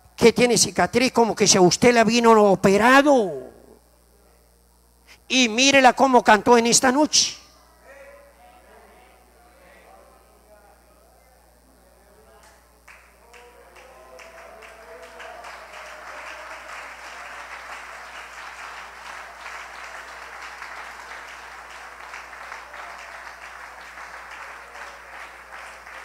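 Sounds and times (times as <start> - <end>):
congregation applauding: 12.8 - 26.0.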